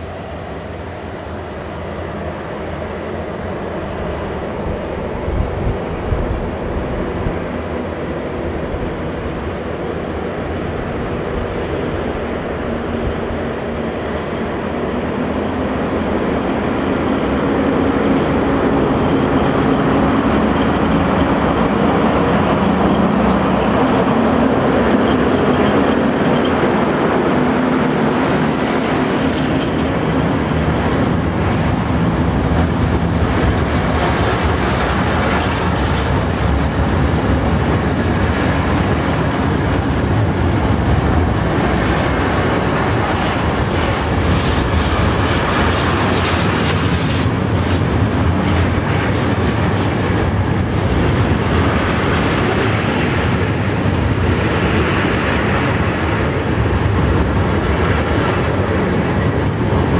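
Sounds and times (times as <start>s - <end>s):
electric locomotive passing: 0.0s - 59.9s
freight wagons rolling by: 17.6s - 59.9s.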